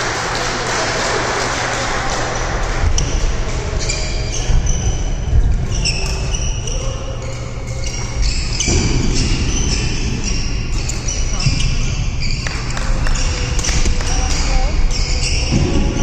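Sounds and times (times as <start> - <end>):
sneaker squeaks on wooden floor: 3.8 - 16.0.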